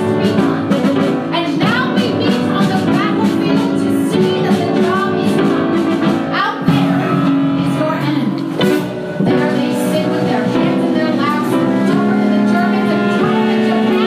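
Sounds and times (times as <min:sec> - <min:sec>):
live band playing: 0:00.0 - 0:14.0
voices singing: 0:09.3 - 0:14.0.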